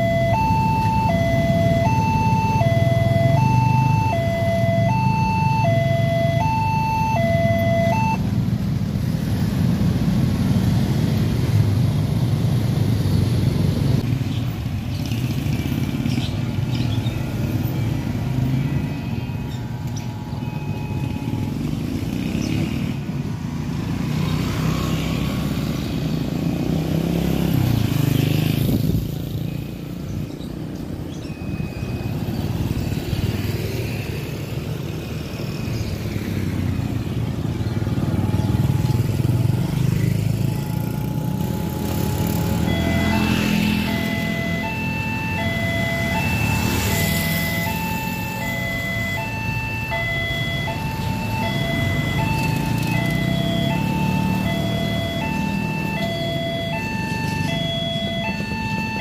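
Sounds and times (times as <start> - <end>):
level crossing two-tone alarm: 0.0 - 8.2, 18.2 - 22.2, 31.3 - 32.3, 40.2 - 59.0
motorbike engines passing: 0.0 - 59.0.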